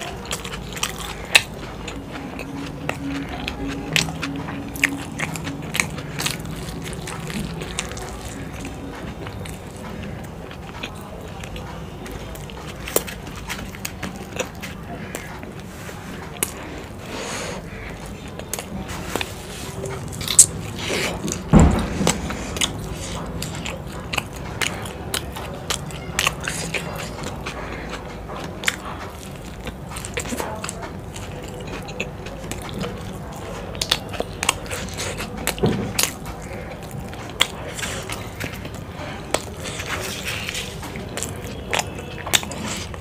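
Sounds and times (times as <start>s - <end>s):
biting into food: 0.0s - 43.0s
wet chewing and mouth smacks: 0.0s - 43.0s
low thump: 21.5s - 22.6s.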